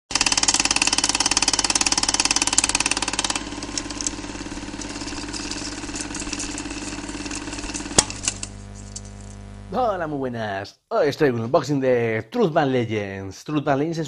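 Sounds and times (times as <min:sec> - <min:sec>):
fast mechanical clatter: 0:00.1 - 0:09.3
steady hum: 0:00.6 - 0:10.4.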